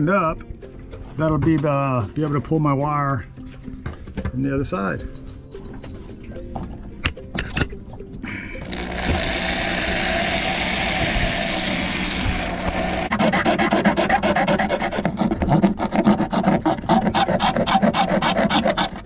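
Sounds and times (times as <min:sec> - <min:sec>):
drill boring: 0:08.5 - 0:15.1
blade sawing rasping strokes: 0:08.5 - 0:19.0.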